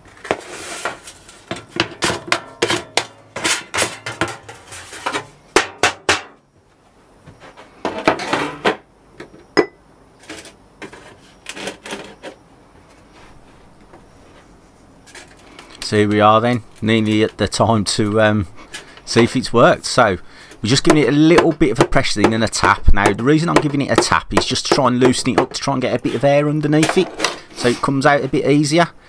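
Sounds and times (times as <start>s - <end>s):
metal objects clattering on workbench: 0.2s - 6.4s, 7.8s - 8.8s.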